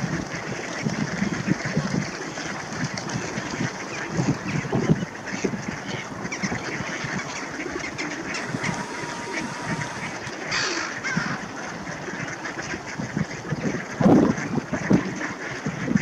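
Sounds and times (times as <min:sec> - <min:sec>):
swans honking: 0:08.3 - 0:11.6
ducks quacking: 0:08.3 - 0:13.2.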